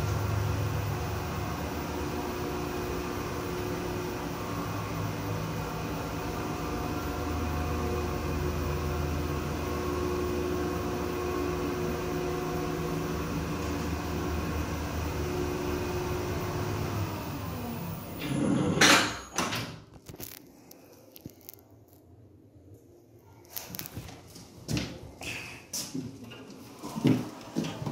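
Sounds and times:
platform lift drive humming: 0.0s - 18.8s.

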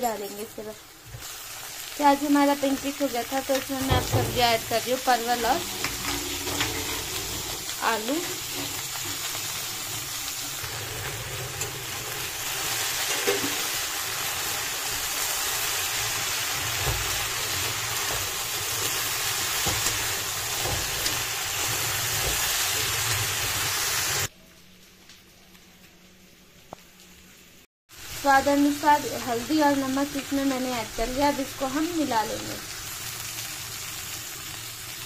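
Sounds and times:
vegetables sizzling in oil: 0.0s - 24.3s, 25.8s - 35.0s
metal spatula scraping: 5.5s - 8.8s.

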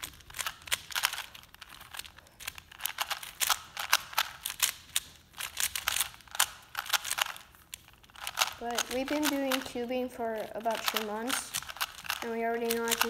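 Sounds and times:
puzzle cube layers clicking: 0.0s - 13.0s.

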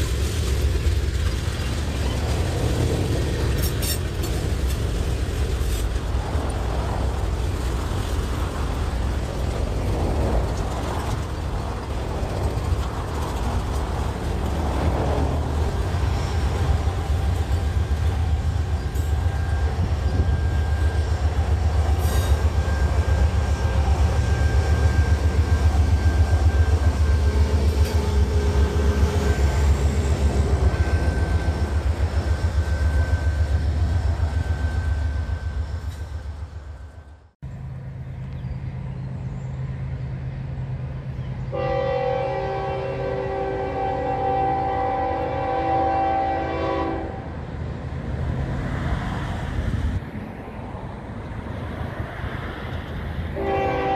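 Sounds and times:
high rail squeal: 0.0s - 6.6s, 12.5s - 37.3s
diesel locomotive passing: 0.0s - 53.9s
freight train cars rumbling over rails: 0.0s - 53.9s
train horn: 41.5s - 47.3s, 53.4s - 53.9s.

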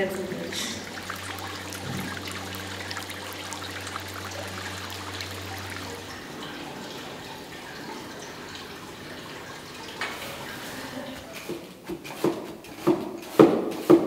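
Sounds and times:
low steady hum: 0.0s - 9.9s
fountain water splashing: 0.2s - 6.8s.

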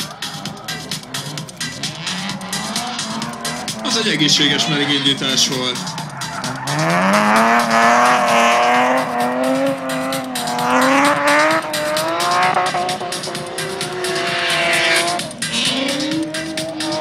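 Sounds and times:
tyres squealing: 0.0s - 11.2s
car engine at high revs: 0.0s - 17.0s.

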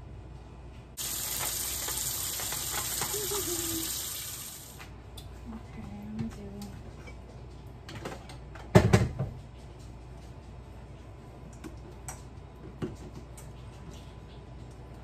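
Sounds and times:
water running from tap: 1.0s - 4.8s.

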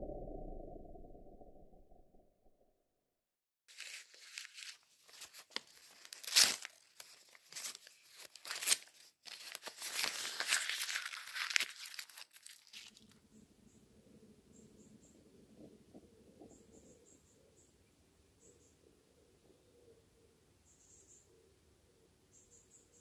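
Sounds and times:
crinkling and crackling: 3.7s - 13.2s.

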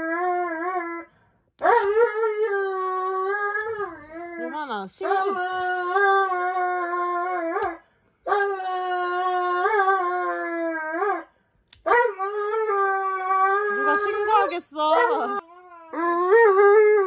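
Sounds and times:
dog screaming in high wails: 11.9s - 17.0s.

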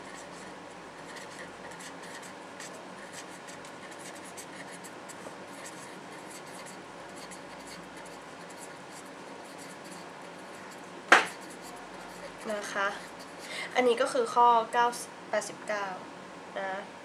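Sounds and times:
pen scratching on paper: 0.0s - 13.5s.

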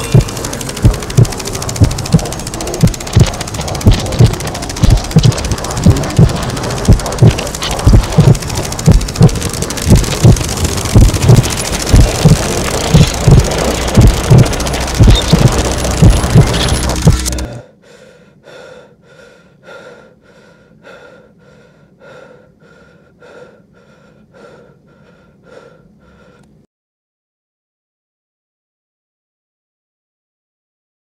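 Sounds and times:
low heartbeat-like thumps: 0.0s - 17.6s
dense electronic noise wash: 0.0s - 17.7s.

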